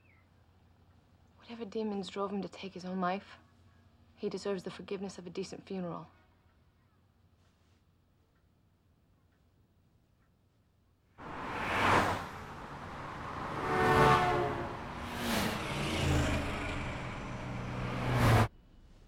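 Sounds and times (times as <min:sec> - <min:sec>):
vehicles rushing past: 0:11.2 - 0:18.5.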